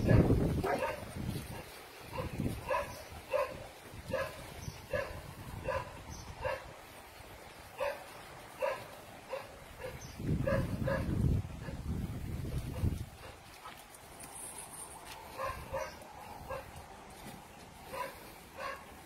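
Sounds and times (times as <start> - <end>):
dog barking: 0.0 - 6.7, 7.8 - 11.8, 15.3 - 16.8, 17.9 - 18.9.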